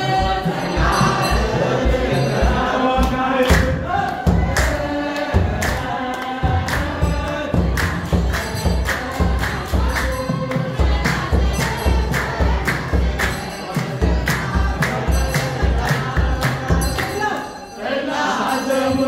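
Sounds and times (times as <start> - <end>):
deep drum beat: 0.0 - 13.2
sharp percussive strokes: 0.0 - 17.7
choir singing a hymn: 0.0 - 19.0.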